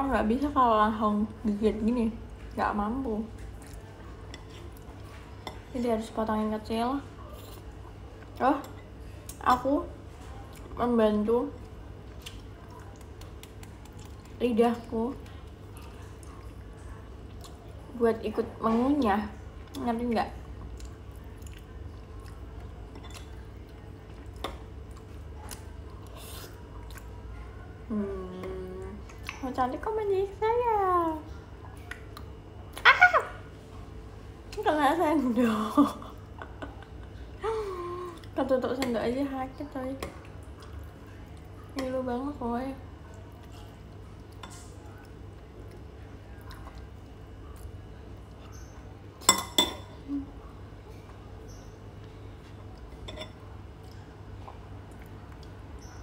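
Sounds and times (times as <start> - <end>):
faint low hum: 0.0 - 56.0
faint eating clicks: 11.6 - 17.7, 53.8 - 56.0
metal spoon clinking on ceramic bowl: 49.2 - 49.9.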